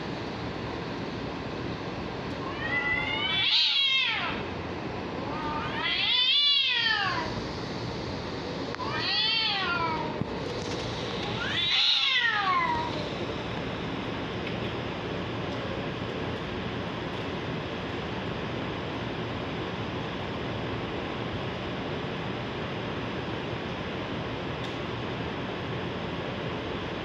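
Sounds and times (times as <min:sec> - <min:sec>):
steady background noise: 0:00.0 - 0:27.0
cats yowling: 0:02.4 - 0:04.5, 0:05.2 - 0:07.4, 0:08.7 - 0:10.4, 0:11.2 - 0:13.4.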